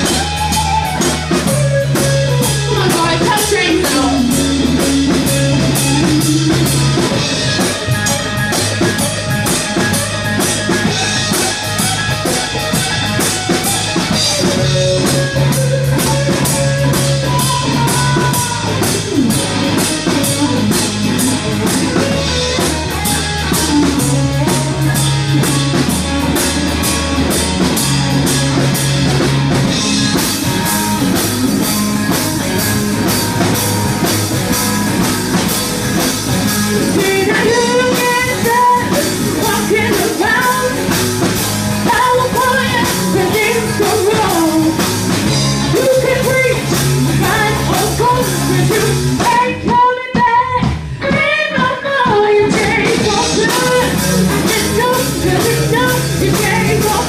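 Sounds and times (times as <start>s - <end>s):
drum kit steady beat: 0.0s - 57.0s
electric bass: 0.0s - 57.0s
electric guitar: 0.0s - 57.0s
woman singing: 2.6s - 4.4s, 17.2s - 19.0s, 36.8s - 41.0s, 41.8s - 44.8s, 45.7s - 57.0s.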